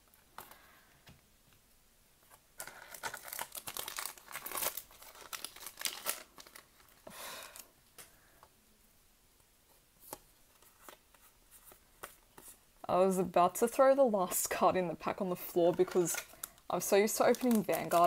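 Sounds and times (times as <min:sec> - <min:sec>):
foil wrapper tearing and crinkling: 0:02.6 - 0:07.0, 0:16.0 - 0:18.0.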